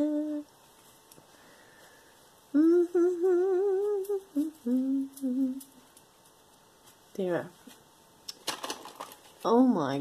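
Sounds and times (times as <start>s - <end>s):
woman humming: 0.0s - 0.5s, 2.5s - 5.8s.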